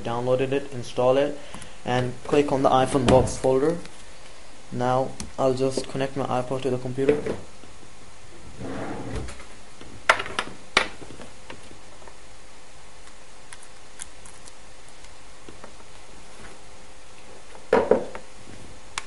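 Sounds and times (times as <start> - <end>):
steady hiss: 0.0 - 19.0.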